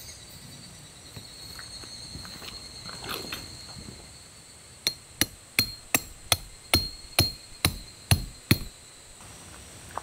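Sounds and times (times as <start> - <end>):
hammer striking metal tent peg: 4.9 - 8.8.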